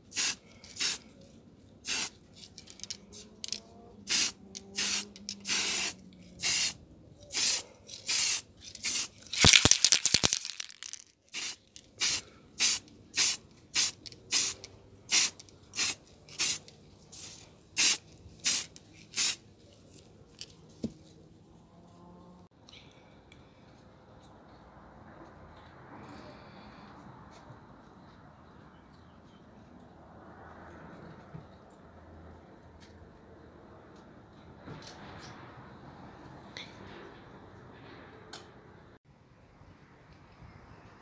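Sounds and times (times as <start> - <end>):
aerosol spray can hissing: 4.1 - 10.6.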